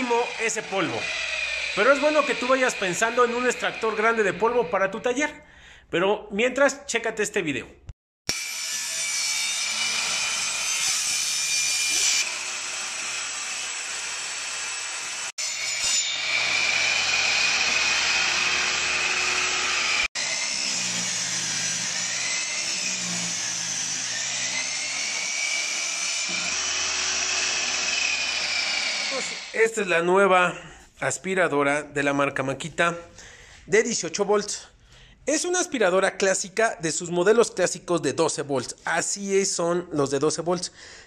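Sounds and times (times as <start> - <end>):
table saw cutting board: 0.0 - 4.9, 8.3 - 29.8.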